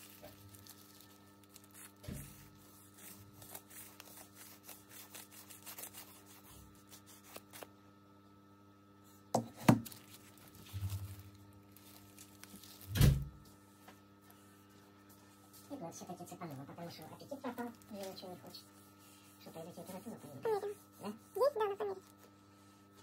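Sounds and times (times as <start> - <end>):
scratching and rubbing on wood: 0.0 - 7.7, 15.5 - 22.3
electrical hum: 0.0 - 23.0.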